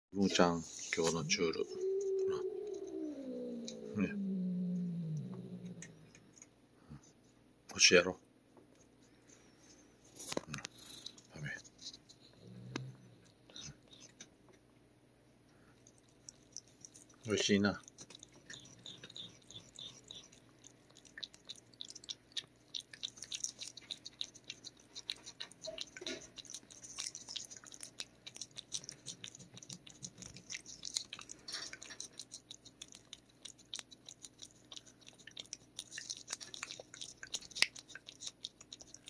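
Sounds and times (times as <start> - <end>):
cat licking: 15.6 - 39.0.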